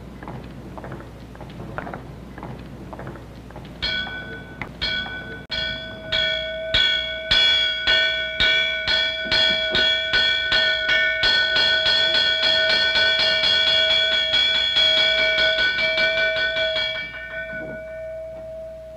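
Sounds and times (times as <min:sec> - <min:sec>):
hand bell ringing: 0:03.8 - 0:18.9.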